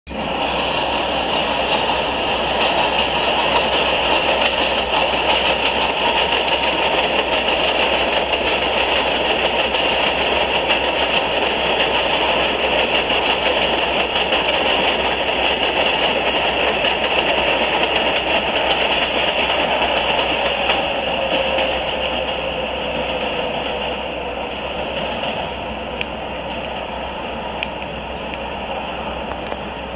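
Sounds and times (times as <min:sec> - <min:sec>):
train wheels rumbling on track: 0:00.1 - 0:29.9.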